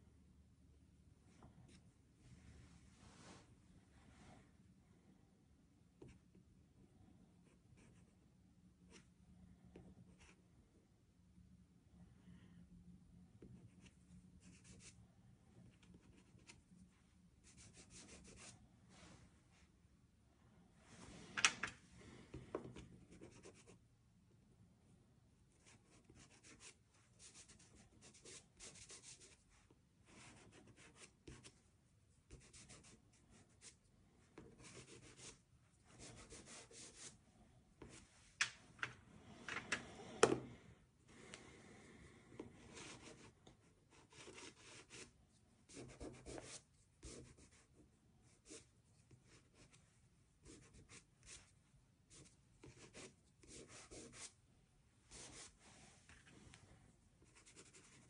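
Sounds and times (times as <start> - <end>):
pastel scratching on paper: 34.4 - 37.2, 52.1 - 54.4, 57.2 - 58.0.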